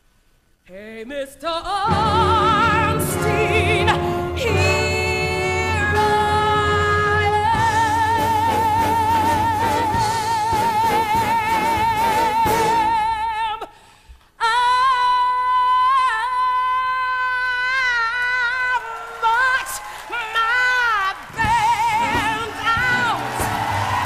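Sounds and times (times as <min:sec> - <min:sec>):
woman singing with vibrato: 0:00.7 - 0:13.8, 0:14.4 - 0:24.0
full orchestra: 0:01.9 - 0:13.2.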